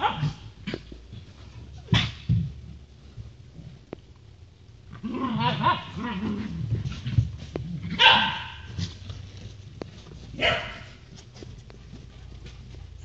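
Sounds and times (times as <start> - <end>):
dogs barking in play: 0.0 - 2.5, 5.0 - 11.3.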